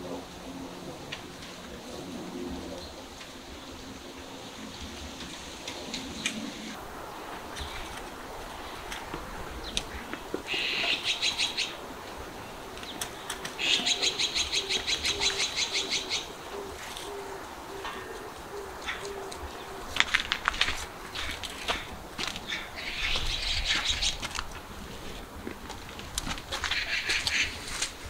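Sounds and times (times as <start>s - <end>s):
birds chirping rapidly: 2.1s - 20.0s, 20.9s - 24.2s, 26.6s - 27.7s.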